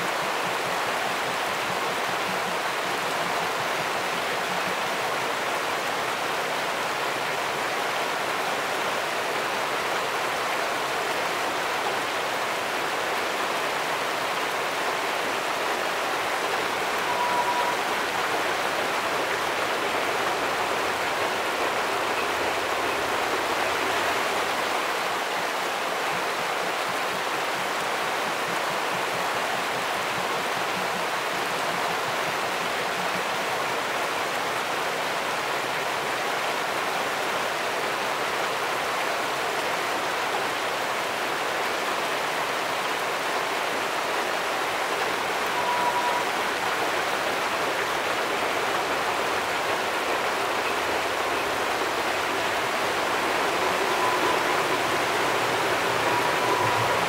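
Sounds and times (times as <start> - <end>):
river water rushing over rocks: 0.0 - 57.0
short high-pitched tone: 17.0 - 18.0, 45.5 - 46.4, 53.6 - 57.0.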